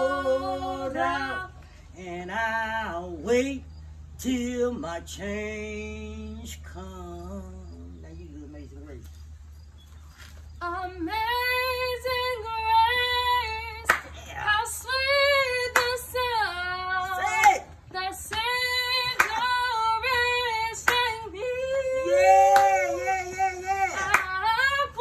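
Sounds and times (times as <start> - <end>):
woman singing unaccompanied: 0.0 - 3.6, 10.6 - 25.0.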